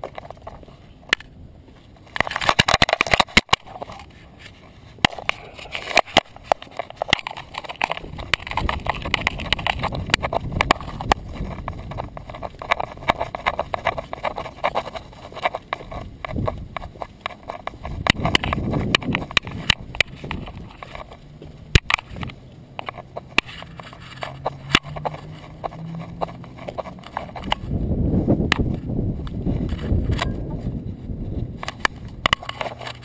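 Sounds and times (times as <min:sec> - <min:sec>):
dog steps clicking on pavement: 0:05.1 - 0:27.8, 0:28.4 - 0:30.7
low handling rumble: 0:16.0 - 0:32.3.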